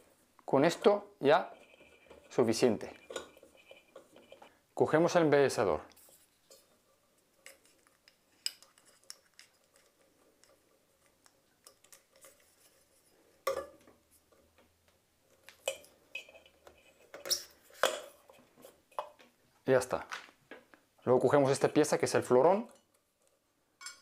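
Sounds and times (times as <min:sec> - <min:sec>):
plastic clicks and rustles: 0:05.9 - 0:12.6.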